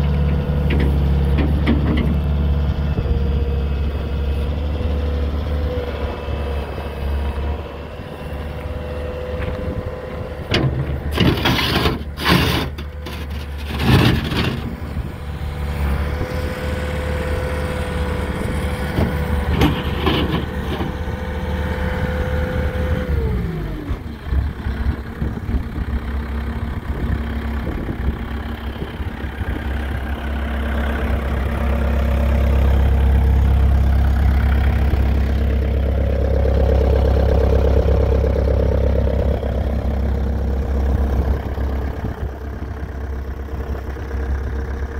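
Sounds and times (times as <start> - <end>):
diesel engine running: 0.0 - 44.9.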